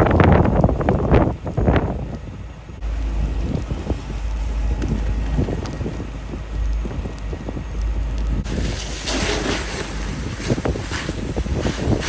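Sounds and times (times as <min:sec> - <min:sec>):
car fire crackling: 0:00.0 - 0:12.0
wind buffeting microphone: 0:00.0 - 0:12.0
hiss of hose water spraying: 0:08.4 - 0:12.0.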